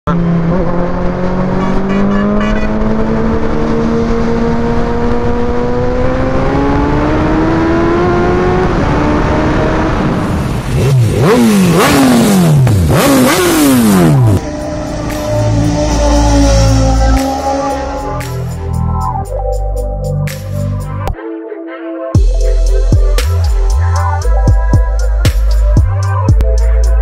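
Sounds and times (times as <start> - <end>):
motorcycle engine accelerating: 0.1 - 19.2.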